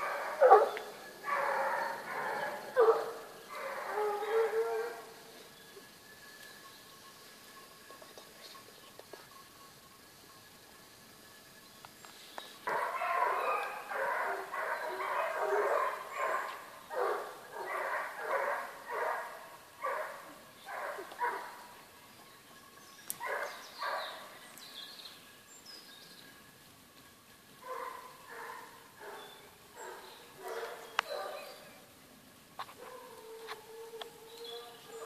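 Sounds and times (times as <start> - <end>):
hunting dogs barking: 0.0 - 5.2, 12.6 - 21.8, 23.2 - 24.3, 27.6 - 31.6, 32.6 - 35.0.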